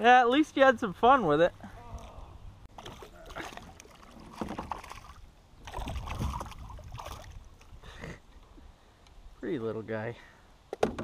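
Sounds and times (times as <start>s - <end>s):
paddle stroking through water: 2.7s - 7.7s
water sloshing: 2.7s - 7.8s.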